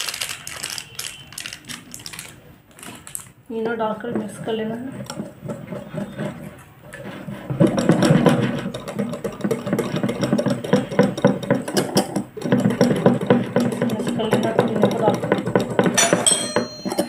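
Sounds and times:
whisk clicking against glass bowl: 7.5s - 17.0s.

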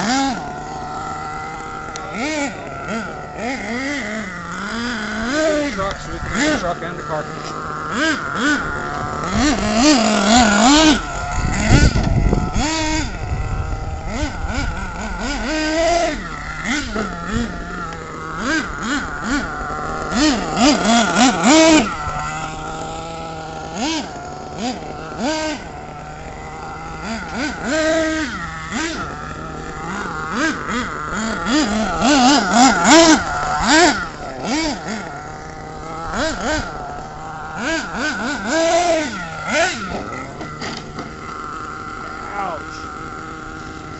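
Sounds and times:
toy truck motor revving: 0.0s - 43.9s.

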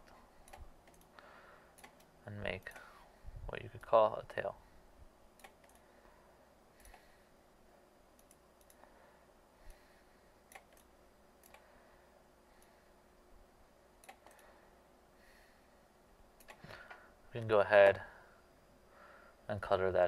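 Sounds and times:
computer mouse clicks: 0.4s - 1.2s, 1.8s - 2.9s, 5.4s - 5.9s, 6.8s - 7.1s, 8.2s - 8.9s, 10.5s - 11.7s, 14.0s - 14.5s, 16.4s - 16.7s.

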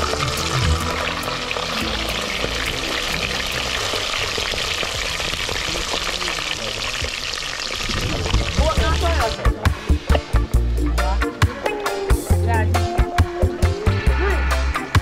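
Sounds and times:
fish deep-frying in oil: 0.0s - 10.6s.

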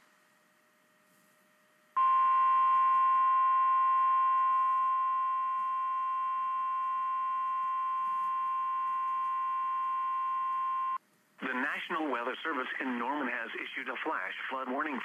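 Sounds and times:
long steady alert beep: 2.0s - 11.0s.

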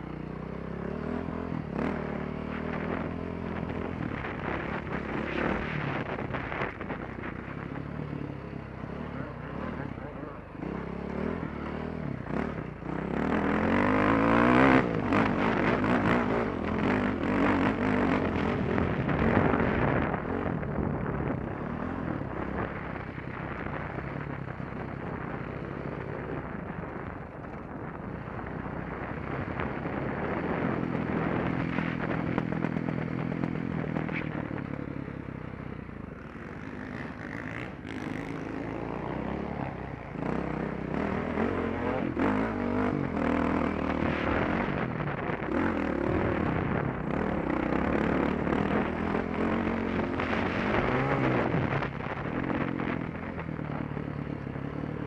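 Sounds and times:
dirt bike engine revving: 7.6s - 20.3s, 36.3s - 53.4s.

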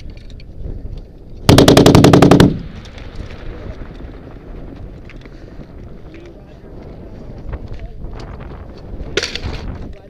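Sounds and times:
machine gun burst: 1.5s - 2.8s.

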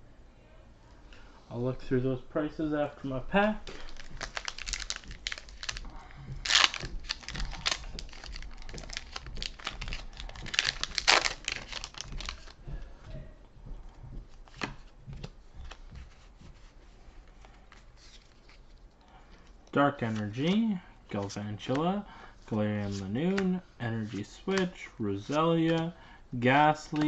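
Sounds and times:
foil wrapper crinkling: 3.3s - 12.6s
cards rustling and clicking: 3.4s - 12.6s, 14.3s - 26.0s, 26.7s - 27.0s
foil wrapper ripping: 3.6s - 12.6s.

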